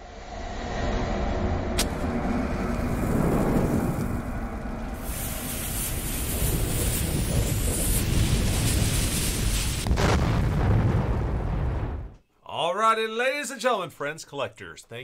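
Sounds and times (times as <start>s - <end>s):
low rumble: 0.0s - 12.2s
fuse hissing: 3.0s - 9.9s.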